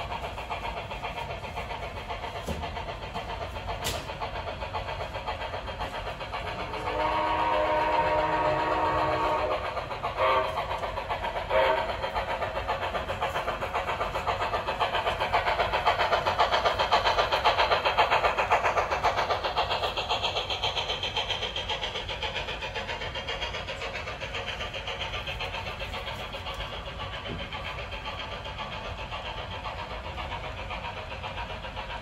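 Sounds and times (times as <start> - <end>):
model train wheels clicking: 0.0 - 32.0
toy steam locomotive whistle: 6.6 - 12.1.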